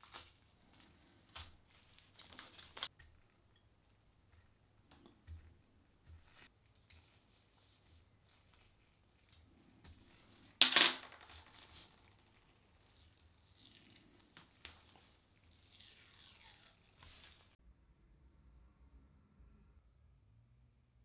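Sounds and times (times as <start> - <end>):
tape peeling rustle: 0.0 - 3.4, 11.3 - 17.6
tape ripping: 11.2 - 17.6.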